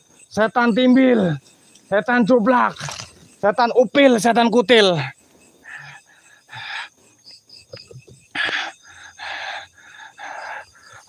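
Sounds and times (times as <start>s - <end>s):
night insects trilling: 0.0s - 11.0s
man breathing hard: 5.5s - 7.2s, 8.3s - 11.0s.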